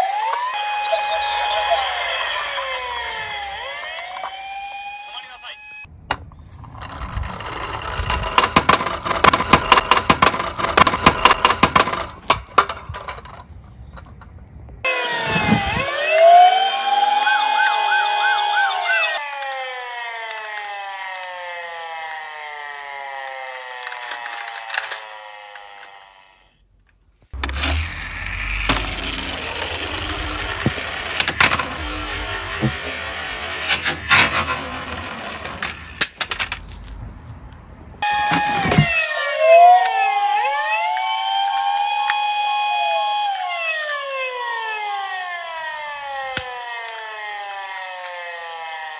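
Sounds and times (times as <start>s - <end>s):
toy car wheels rumbling on wood: 6.6s - 14.1s, 27.4s - 36.6s
toy van clattering on board: 6.6s - 14.4s, 23.5s - 25.9s.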